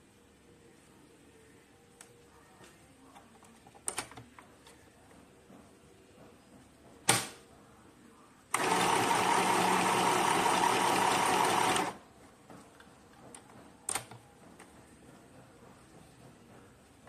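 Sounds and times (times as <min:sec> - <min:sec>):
sewing machine stitching: 0:08.5 - 0:12.0.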